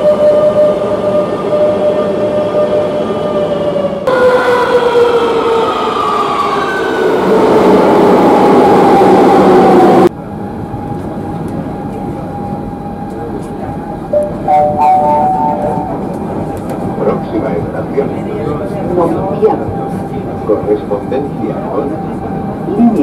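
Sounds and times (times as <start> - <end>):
rail noise: 0.0 - 23.0.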